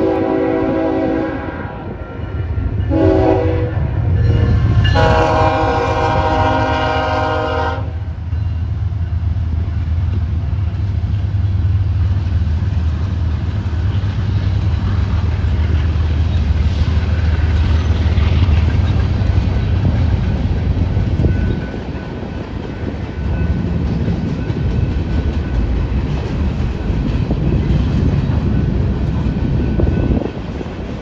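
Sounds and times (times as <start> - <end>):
locomotive air horn blasts: 0.0 - 2.0, 2.9 - 8.1
diesel locomotive rumble: 0.0 - 31.0
rolling freight cars: 0.0 - 31.0.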